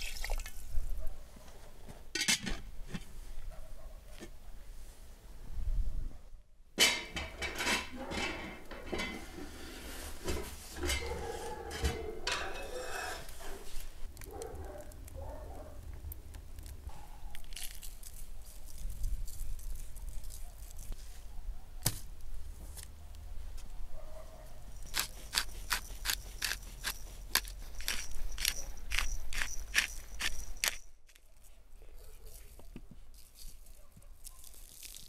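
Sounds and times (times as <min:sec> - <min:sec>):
pot and lid clanking: 0:02.2 - 0:02.7, 0:06.8 - 0:09.5, 0:10.3 - 0:13.3.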